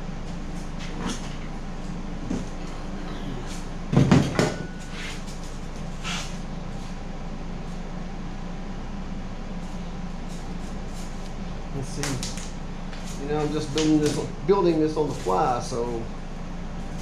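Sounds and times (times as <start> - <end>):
steady low hum: 0.0 - 17.0
heavy thump and clatter: 3.9 - 4.7.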